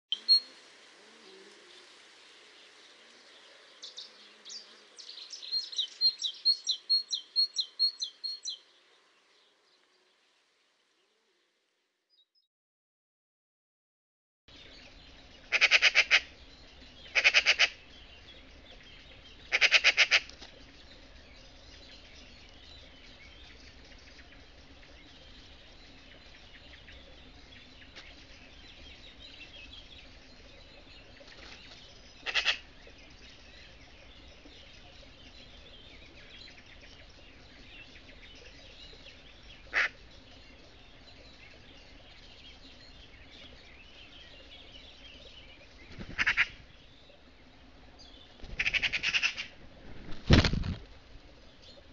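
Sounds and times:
small birds chirping: 0.1s - 11.4s, 14.5s - 51.9s
magpie harsh rattling chatter: 17.1s - 17.8s.

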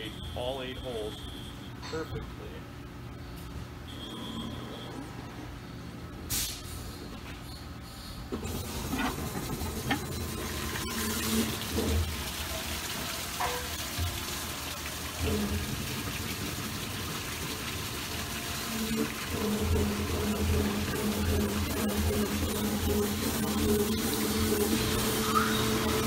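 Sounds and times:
honing oil gushing: 8.4s - 26.0s.

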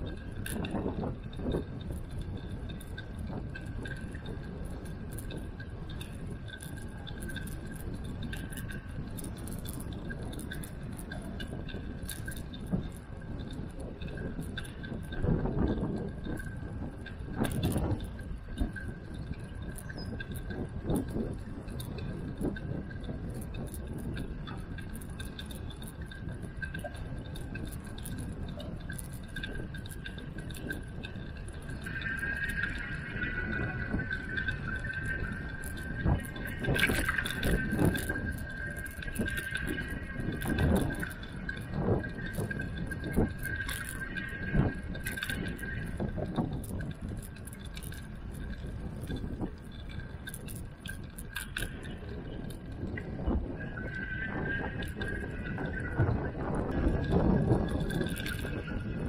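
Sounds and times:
small rattling clicks: 0.0s - 52.8s, 56.8s - 58.7s
light ticking: 0.0s - 58.8s
wind and tyre rumble: 0.0s - 59.0s
faint high whine: 17.7s - 50.7s.

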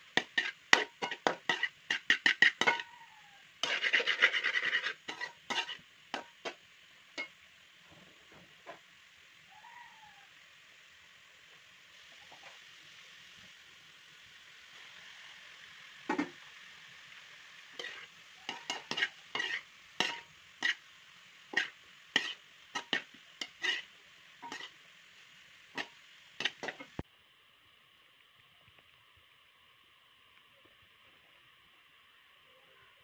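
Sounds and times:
faint hiss: 0.0s - 33.0s
frying sizzle: 0.0s - 33.0s
metal clinking on a pan: 0.2s - 2.9s, 17.8s - 20.8s, 24.4s - 24.7s
metal spatula scraping a pan: 0.2s - 3.0s, 3.6s - 6.6s, 17.8s - 20.9s, 21.5s - 24.8s, 25.7s - 27.0s.

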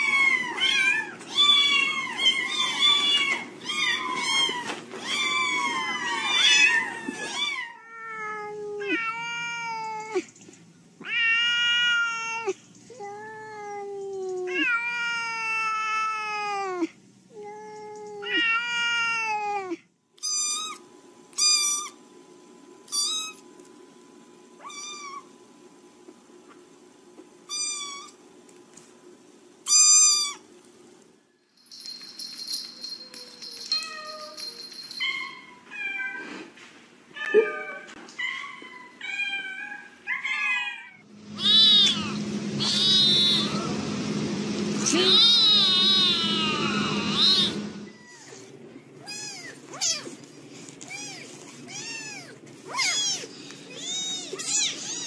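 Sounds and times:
cats meowing: 0.0s - 10.3s, 11.0s - 20.8s, 24.6s - 25.3s, 27.5s - 28.2s, 37.2s - 43.6s, 45.1s - 50.2s, 50.8s - 55.0s.

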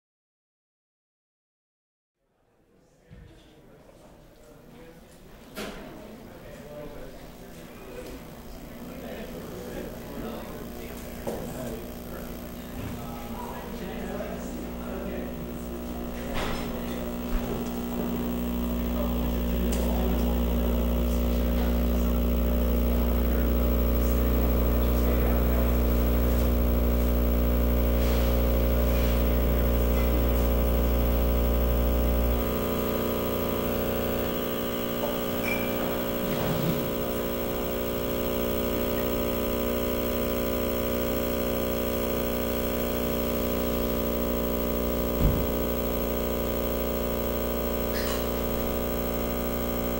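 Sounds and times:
electronic feedback drone tones: 8.4s - 49.9s
deep bass hum: 15.4s - 49.9s.

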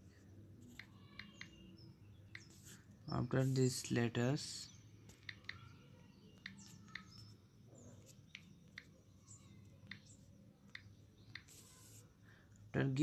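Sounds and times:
typing taps on smartphone: 0.7s - 1.6s, 2.3s - 2.5s, 5.1s - 5.7s, 6.3s - 7.4s, 8.2s - 9.0s, 9.8s - 11.6s.

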